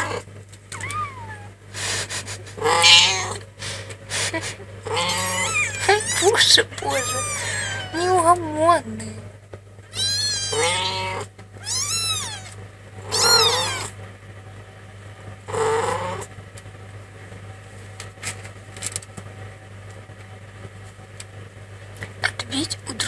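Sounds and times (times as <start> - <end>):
kittens meowing: 0.0 - 1.6, 2.6 - 3.4, 4.9 - 8.1, 9.9 - 14.0.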